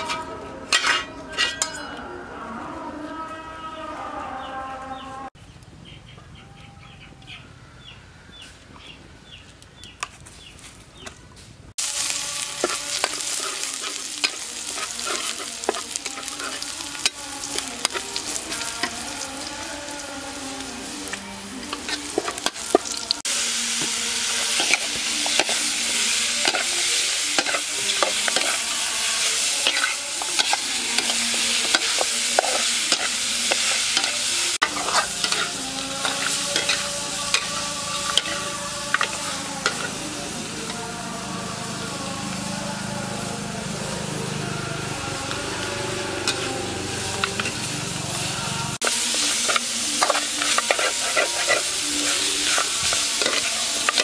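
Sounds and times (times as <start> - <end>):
metal spatula scraping a wok: 0.0 - 2.0, 11.8 - 19.8, 20.9 - 40.8, 45.2 - 54.0
food sizzling in hot oil: 11.8 - 54.0.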